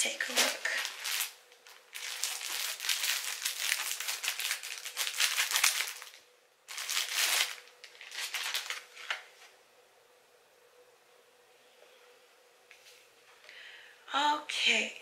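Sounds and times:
packaging crinkling: 0.0 - 9.3.

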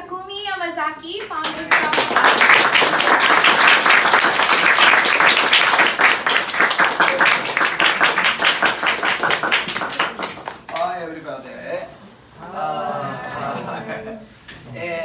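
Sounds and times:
group applauding: 1.3 - 11.3.

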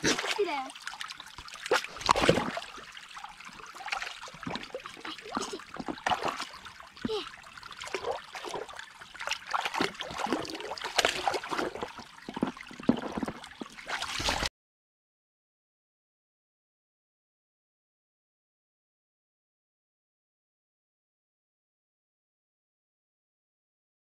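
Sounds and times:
dog splashing in muddy puddle: 9.5 - 12.0.

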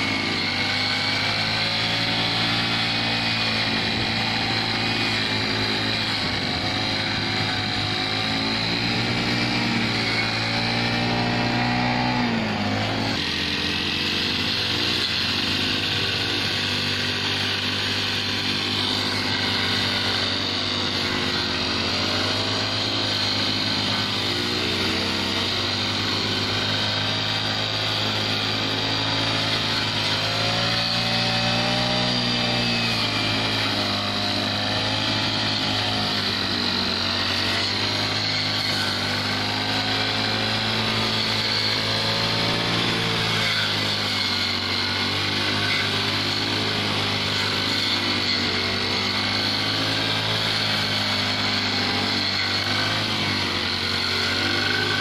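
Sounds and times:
brush cutter engine cutting grass: 0.0 - 55.0.

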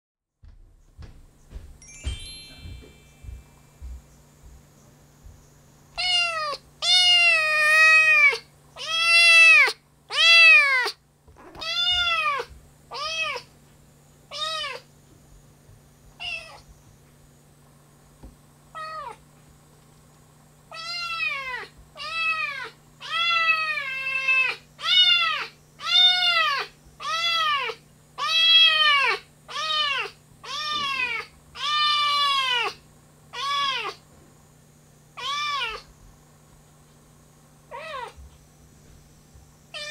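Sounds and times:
kitten meowing: 6.0 - 13.5, 14.3 - 14.8, 16.2 - 16.6, 20.7 - 32.8, 33.4 - 34.0, 35.2 - 35.9, 37.7 - 38.2.

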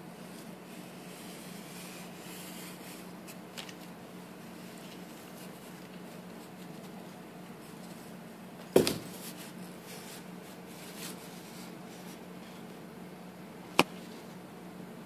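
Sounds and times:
steady low hum: 0.0 - 15.0
knock on cardboard box: 8.7 - 9.1.

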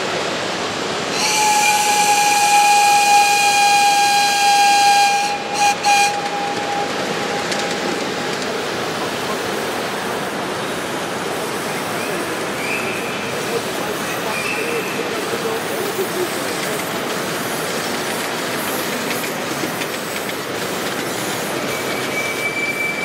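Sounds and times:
steady steam hiss: 0.0 - 23.0
steam whistle: 1.1 - 7.7, 21.7 - 23.0.

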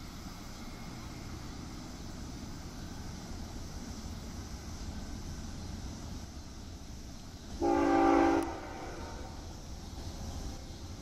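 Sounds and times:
locomotive air horn blast: 7.6 - 9.3.

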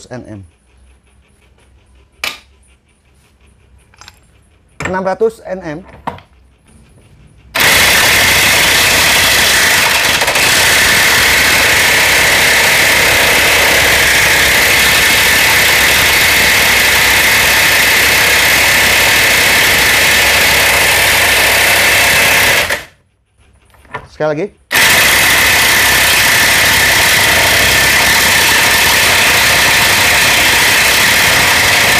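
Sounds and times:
electric impact wrench hammering: 7.5 - 23.0, 24.7 - 31.9.

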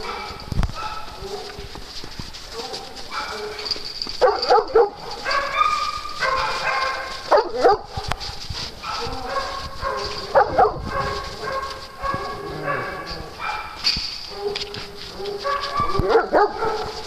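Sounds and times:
dogs barking: 0.0 - 1.8, 2.4 - 17.0
dogs whining: 8.8 - 13.5.

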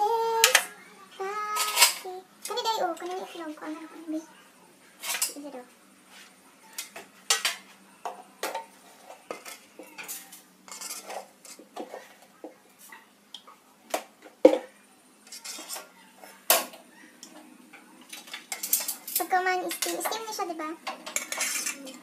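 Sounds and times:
utensils and dishes clinking: 1.5 - 2.1, 5.0 - 5.5, 6.7 - 12.3, 14.2 - 22.0.

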